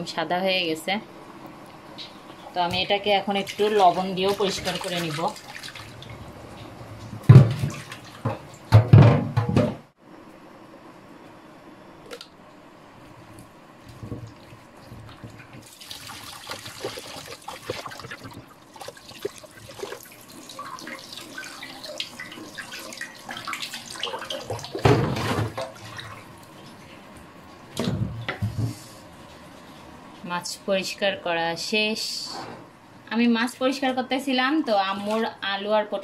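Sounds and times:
tap water running into a sink: 14.0 - 26.2
hands splashing fish in water: 15.6 - 20.2
water poured off a dish: 15.6 - 26.1.

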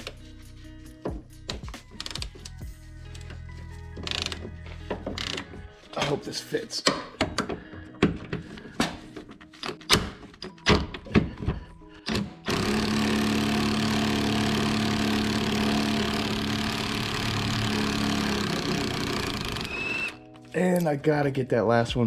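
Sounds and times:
ratchet clicks and clanks: 12.1 - 20.2.

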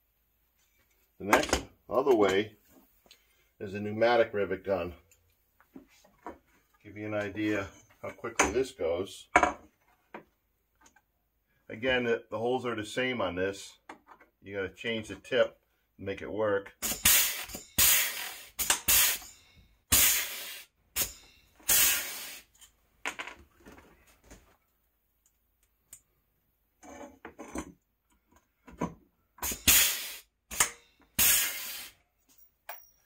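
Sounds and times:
small handling noises: 0.3 - 3.6, 5.0 - 8.7
rivet gun air hisses: 16.8 - 19.3, 19.9 - 22.6, 29.4 - 32.0.

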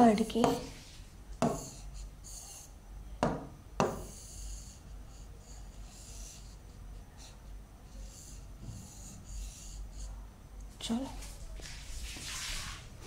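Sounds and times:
pen tapping on glass: 1.4 - 1.7, 3.2 - 4.1
pen scratching on glass: 1.4 - 2.7.

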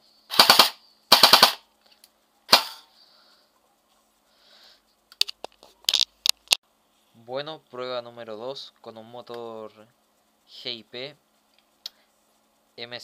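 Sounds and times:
airsoft gun firing bursts: 0.3 - 1.6, 2.5 - 2.8.

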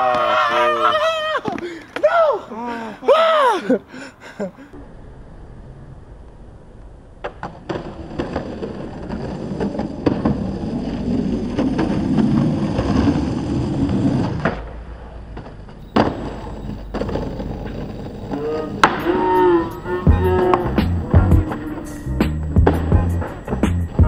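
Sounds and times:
skateboard wheels rolling on pavement: 0.0 - 2.4, 4.7 - 24.0
skateboard clacks: 7.2 - 24.0.

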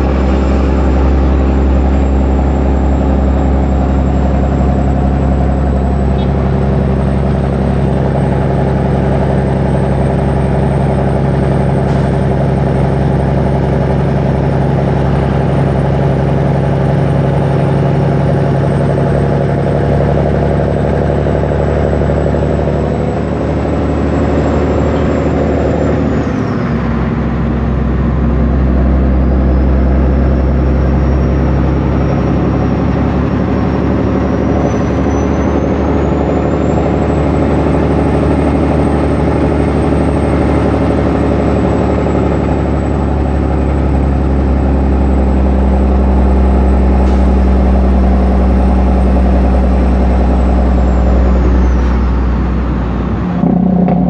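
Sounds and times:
truck diesel engine running: 0.0 - 54.0.

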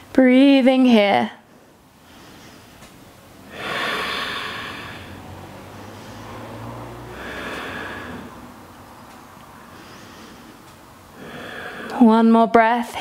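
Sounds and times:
person breathing: 2.0 - 8.6, 9.5 - 12.0.

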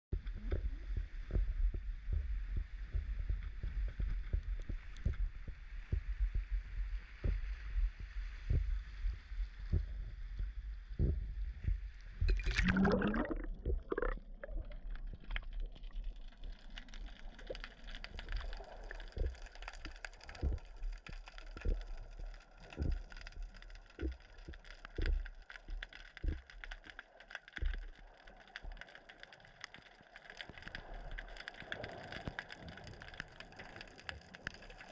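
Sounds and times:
low rumble: 0.1 - 19.4
camera splashing into water: 12.3 - 14.1.

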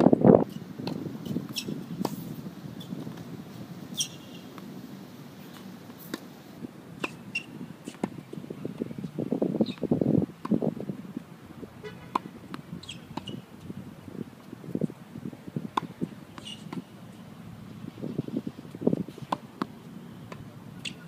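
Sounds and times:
tennis ball bounces: 12.1 - 13.5, 18.6 - 21.0.

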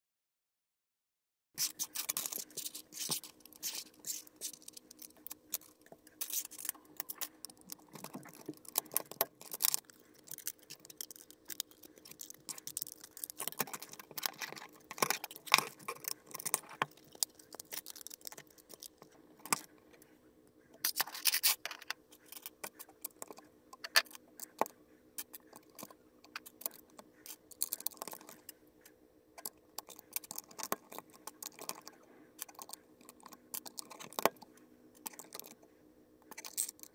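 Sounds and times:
faint steady hum: 1.6 - 36.9
plastic bricks clicking and clattering: 1.9 - 19.6.

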